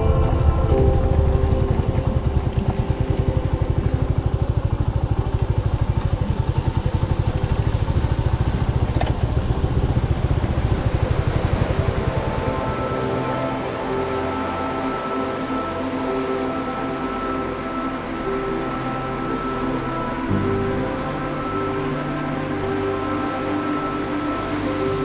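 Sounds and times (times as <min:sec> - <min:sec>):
motorcycle engine running: 0:00.0 - 0:24.8.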